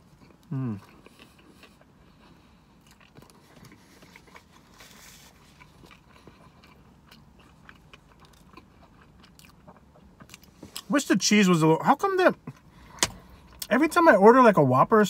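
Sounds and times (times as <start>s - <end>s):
chewing with wet mouth clicks: 0.0s - 4.6s, 5.4s - 10.6s.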